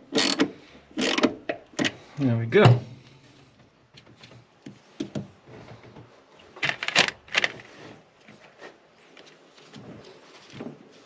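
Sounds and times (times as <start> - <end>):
spanner clicking on metal nuts: 0.1 - 1.3.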